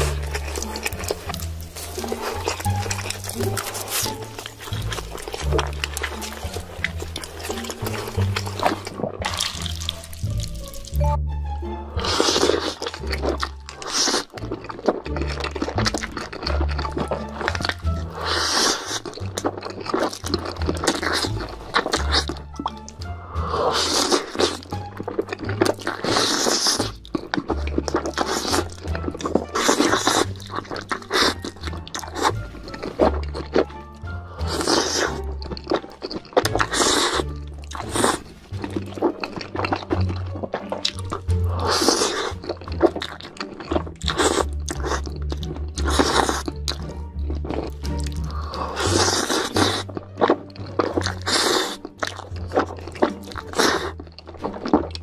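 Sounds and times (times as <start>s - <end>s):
lip-smacking clicks: 0.0s - 11.1s, 24.0s - 55.0s
noodles slurped and chewed: 0.0s - 11.2s, 11.8s - 55.0s
background music with bass: 0.0s - 55.0s.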